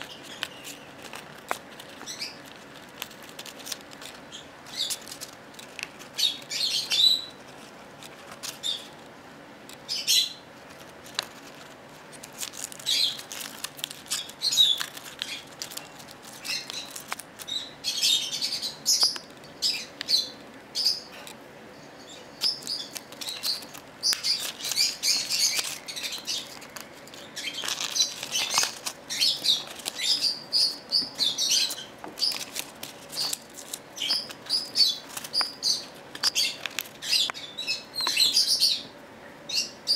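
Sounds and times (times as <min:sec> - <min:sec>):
paper crinkling and tearing: 0:00.0 - 0:06.6, 0:07.4 - 0:09.1, 0:10.6 - 0:17.5, 0:22.6 - 0:30.3, 0:31.4 - 0:37.1.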